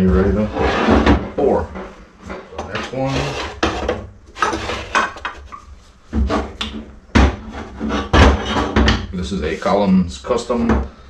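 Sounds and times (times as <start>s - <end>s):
metal scrapes and rattles: 0.0s - 5.6s, 7.4s - 9.6s
heavy knocks on workbench: 7.1s - 7.5s.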